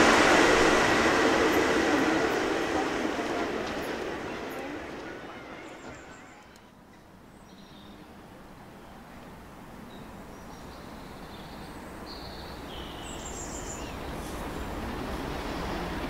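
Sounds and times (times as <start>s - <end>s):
diesel locomotive rumble: 0.0s - 6.7s.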